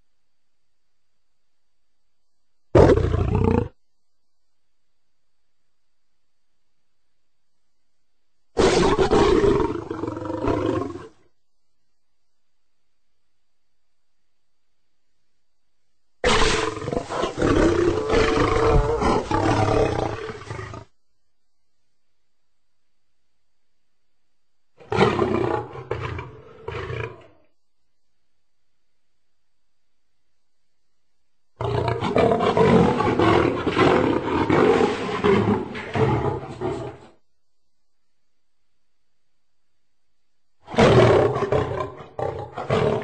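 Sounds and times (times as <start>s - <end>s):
lion roaring: 2.8s - 3.8s, 8.6s - 11.2s, 16.2s - 20.9s, 24.8s - 27.4s, 31.6s - 37.2s, 40.6s - 43.0s.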